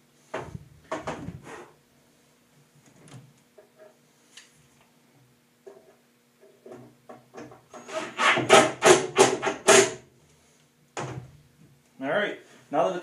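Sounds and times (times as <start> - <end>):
drill driving screw into wood: 7.7 - 10.0.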